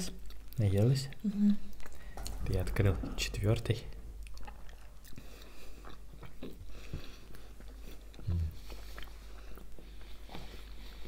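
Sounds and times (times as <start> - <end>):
chewing soft cake: 0.0 - 2.1, 4.3 - 11.0.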